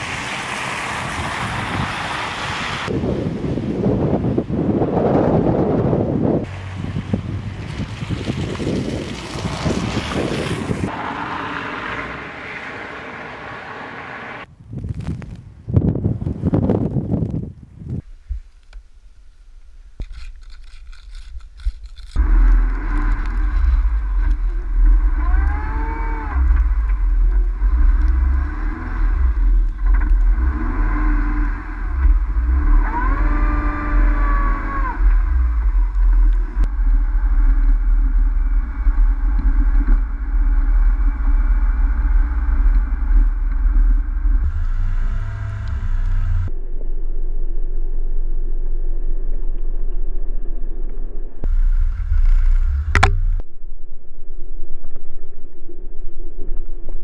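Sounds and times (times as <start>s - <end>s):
traffic: 0.0s - 16.7s, 18.5s - 53.6s
wind buffeting microphone: 0.8s - 10.9s, 14.4s - 18.5s
car engine revving: 22.2s - 46.5s, 51.4s - 53.4s.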